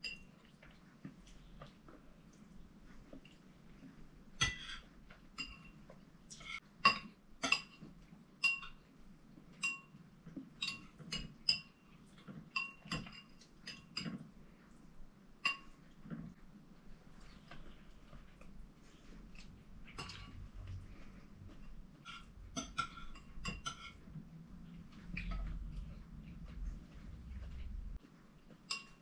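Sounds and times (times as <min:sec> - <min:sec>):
cutlery clinking on ceramic plates: 0:04.4 - 0:08.8, 0:09.6 - 0:10.0, 0:10.6 - 0:11.8, 0:12.5 - 0:14.3, 0:15.4 - 0:15.8, 0:22.0 - 0:24.1, 0:28.6 - 0:29.0.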